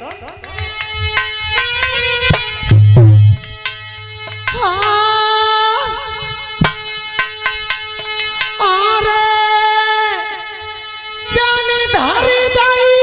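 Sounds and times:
hand drum strokes: 0:00.3 - 0:05.2, 0:06.6 - 0:08.6
wind instrument melody: 0:00.4 - 0:13.0.

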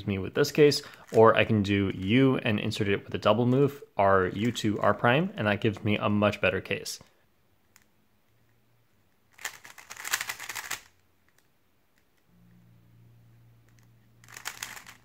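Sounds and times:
puzzle cube layers clicking: 0:07.6 - 0:12.3, 0:13.6 - 0:15.0.

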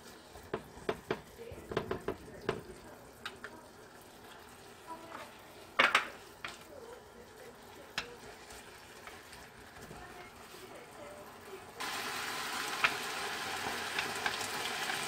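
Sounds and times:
meat sizzling in a frying pan: 0:00.0 - 0:15.0
chopsticks clicking against pan: 0:03.2 - 0:03.6, 0:07.9 - 0:08.2.

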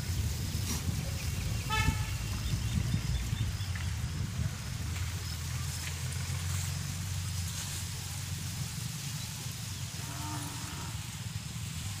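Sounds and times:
wind rumble on microphone: 0:00.0 - 0:12.0
faint farm animal call: 0:10.0 - 0:11.1.

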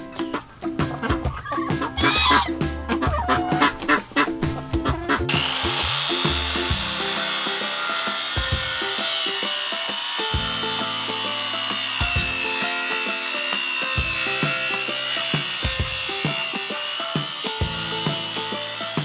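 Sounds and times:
background music: 0:00.0 - 0:19.0
chop saw cutting steel pipe: 0:05.3 - 0:19.0.

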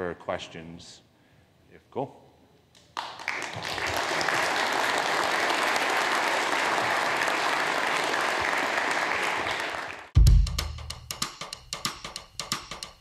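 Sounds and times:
audience applauding: 0:03.0 - 0:10.2.

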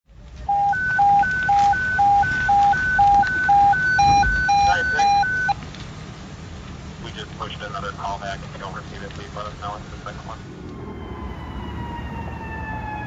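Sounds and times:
hi-lo electronic alert beeps: 0:00.5 - 0:05.6
higher beeps: 0:00.5 - 0:05.6.

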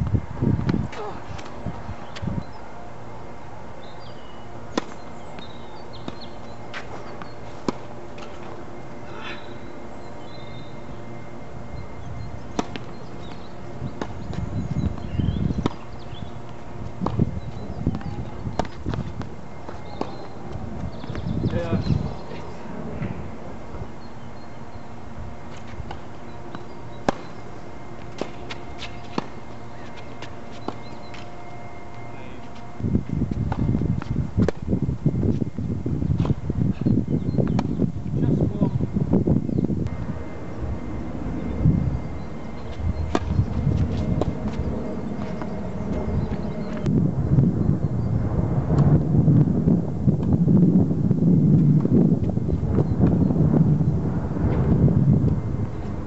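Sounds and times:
steady low rumble: 0:00.0 - 0:56.0
tennis ball hit by racket: 0:04.7 - 0:05.0, 0:12.5 - 0:12.9, 0:28.1 - 0:29.4
tennis ball hit and bouncing: 0:04.7 - 0:08.6, 0:12.5 - 0:14.4, 0:17.9 - 0:20.3, 0:25.5 - 0:27.4, 0:28.0 - 0:31.3, 0:43.1 - 0:43.4.

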